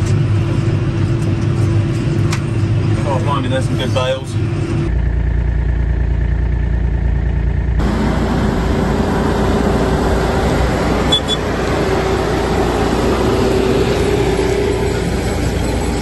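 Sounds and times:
low machinery rumble: 0.0 - 16.0
tractor engine running: 0.0 - 16.0.

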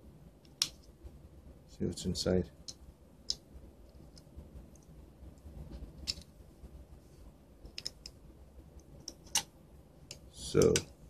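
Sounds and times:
faint handling noise: 2.6 - 11.0.

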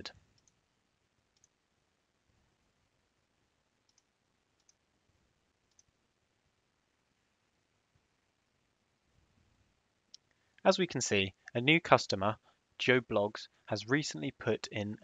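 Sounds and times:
faint computer mouse clicks: 0.3 - 0.6, 1.3 - 1.6, 3.8 - 4.8, 5.7 - 5.9.

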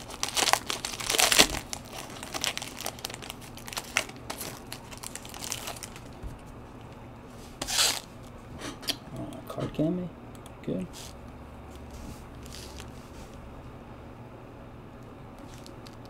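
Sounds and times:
plastic foil wrapper crinkling: 0.0 - 6.2, 12.4 - 12.9, 15.4 - 16.0.

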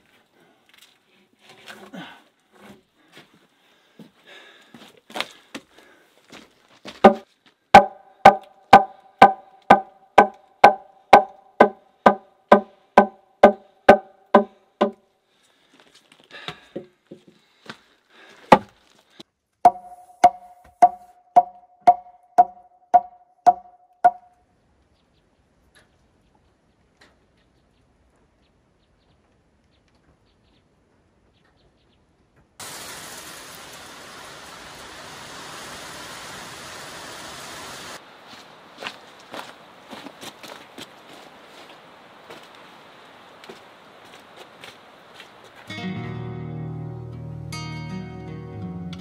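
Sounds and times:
hammer blows on log wall: 7.0 - 7.2, 7.8 - 15.0, 19.7 - 24.3.

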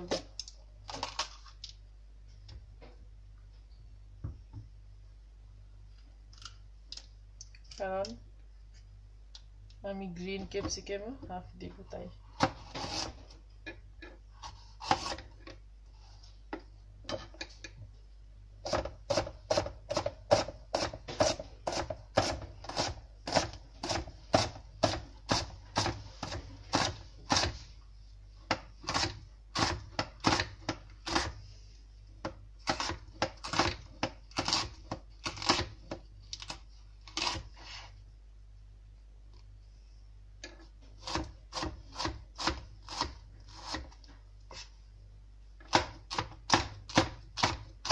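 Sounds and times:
knife chopping on cutting board: 14.8 - 15.2, 18.7 - 27.6, 41.0 - 44.0.

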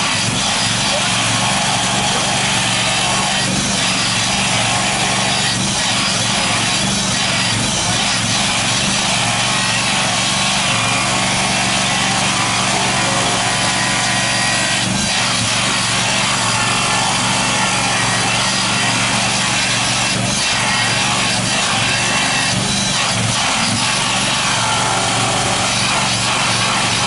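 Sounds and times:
rail grinder grinding: 0.0 - 27.0.

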